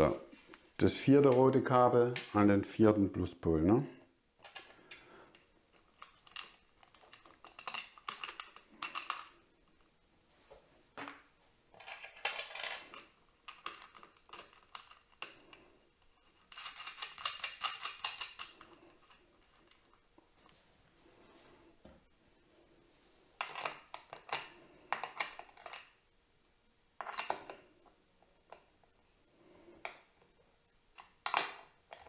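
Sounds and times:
metal nut clicks and rattles: 0:06.0 - 0:09.4, 0:11.8 - 0:15.6, 0:16.5 - 0:19.9.

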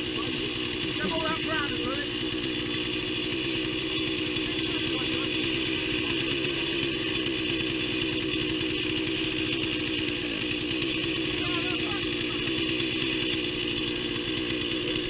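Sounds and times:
small engine running steadily: 0:00.0 - 0:15.0.

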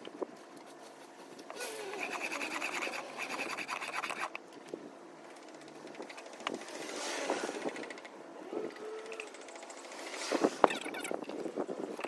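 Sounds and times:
chisel scraping on sharpening stone: 0:01.9 - 0:04.4.

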